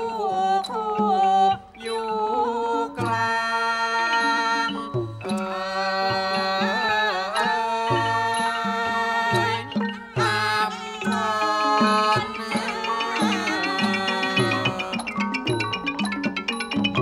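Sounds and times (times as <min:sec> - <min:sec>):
drum strokes: 0:07.4 - 0:17.0.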